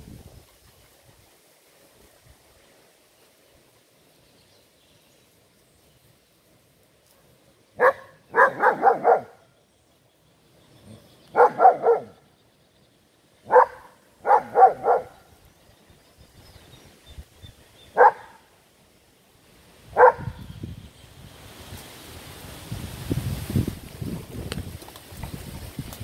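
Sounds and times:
puppy barking: 0:07.8 - 0:09.4, 0:11.3 - 0:12.2, 0:13.5 - 0:15.2, 0:18.0 - 0:18.4, 0:20.0 - 0:20.4.

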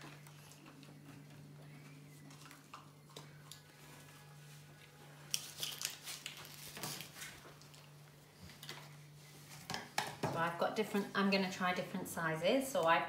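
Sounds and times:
low hum: 0:00.0 - 0:05.4
packet rustling and crinkling: 0:05.3 - 0:08.9.

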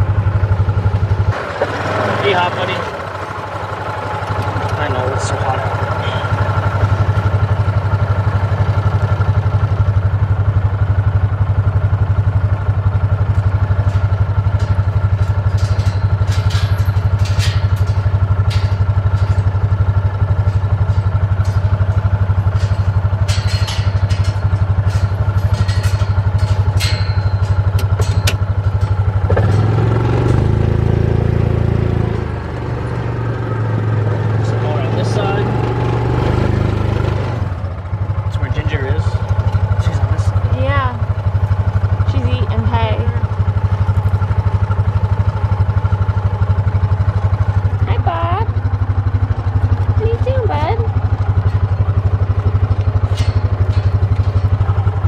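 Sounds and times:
engine revving: 0:00.0 - 0:09.7, 0:13.2 - 0:41.1
sharp clicks and rattles: 0:00.0 - 0:55.0
utility vehicle engine idling: 0:00.0 - 0:55.0.

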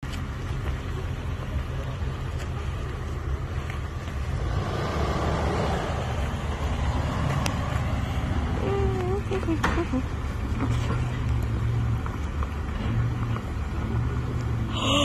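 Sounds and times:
off-road vehicle engine rumbling: 0:00.0 - 0:15.0.

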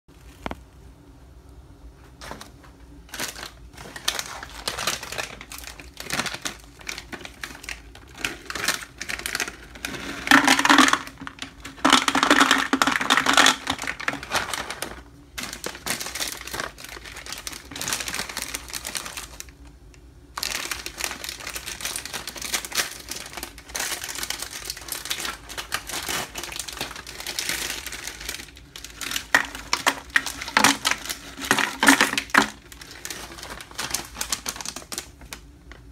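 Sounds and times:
plastic packets crinkling: 0:02.2 - 0:35.9
nuts clattering into plastic jar: 0:08.5 - 0:14.3, 0:29.0 - 0:32.7.

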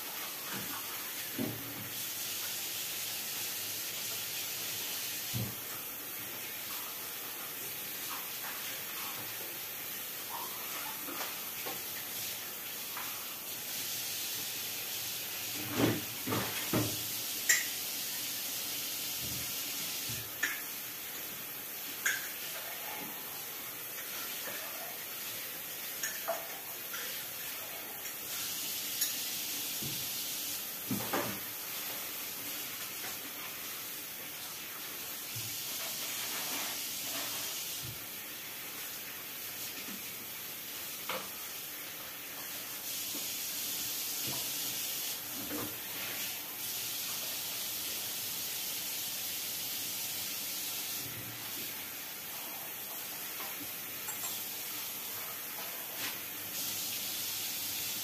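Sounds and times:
tap running into a sink: 0:15.6 - 0:17.8, 0:22.0 - 0:22.4
dishes clinking: 0:54.0 - 0:54.4.

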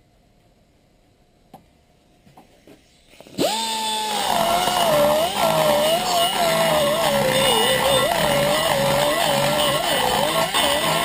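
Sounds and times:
die grinder whining: 0:03.3 - 0:11.0.

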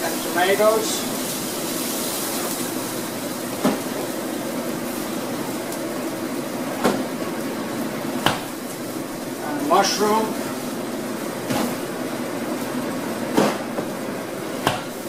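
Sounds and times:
kitchen hiss and hum: 0:00.0 - 0:15.0.

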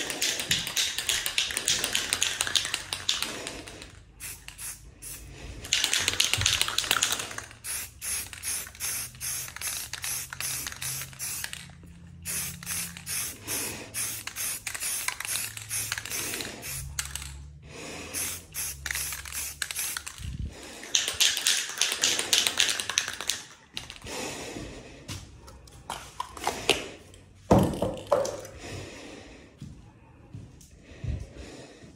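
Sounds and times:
aerosol spray can hissing: 0:00.0 - 0:17.4, 0:18.1 - 0:20.2, 0:20.8 - 0:24.0.

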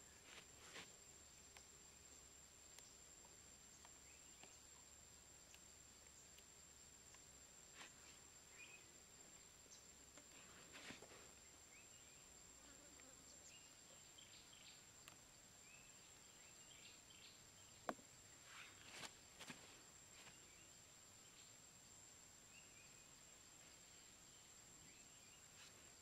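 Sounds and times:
bamboo sticks rustling: 0:00.0 - 0:01.7, 0:07.1 - 0:08.3, 0:10.1 - 0:11.5, 0:17.9 - 0:20.5
insect drone: 0:00.0 - 0:26.0.

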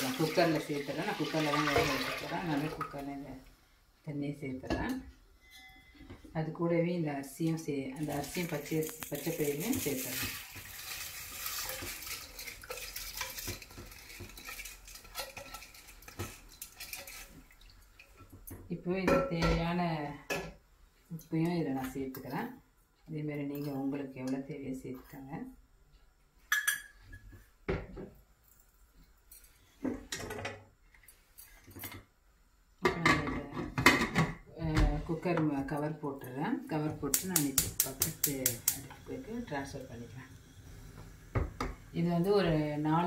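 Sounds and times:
glass bowl clinking on cooker: 0:26.5 - 0:27.0.

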